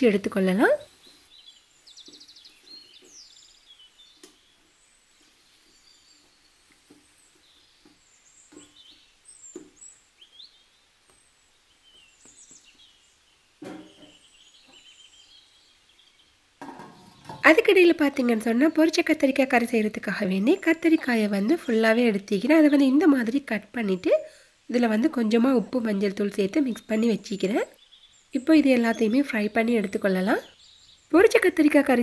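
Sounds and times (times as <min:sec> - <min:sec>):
lid placed on pot: 0:13.6 - 0:14.1, 0:16.6 - 0:17.5
wooden spatula knocking on pot: 0:16.6 - 0:17.5.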